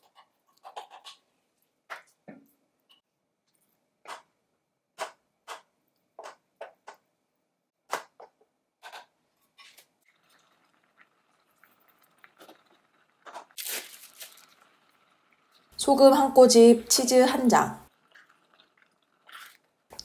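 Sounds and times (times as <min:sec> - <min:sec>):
porridge simmering faintly: 0:00.0 - 0:20.0
spoon stirring thick porridge: 0:17.9 - 0:20.0.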